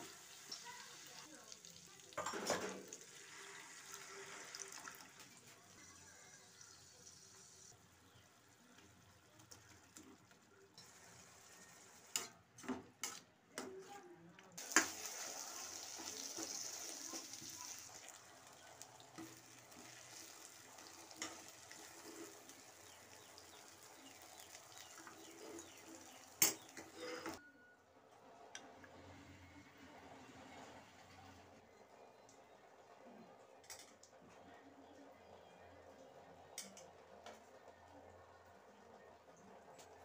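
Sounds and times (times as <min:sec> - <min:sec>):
food sizzling in pan: 0:00.0 - 0:02.2, 0:14.6 - 0:27.4.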